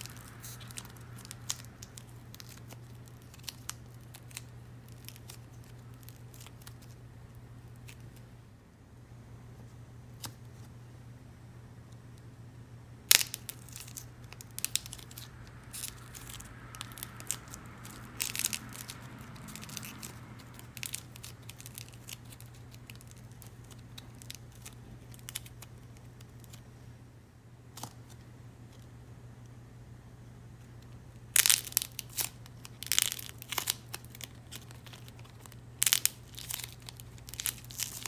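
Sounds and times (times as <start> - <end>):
dried clay cracking and crumbling: 0.0 - 7.0, 13.1 - 26.6, 30.8 - 38.0.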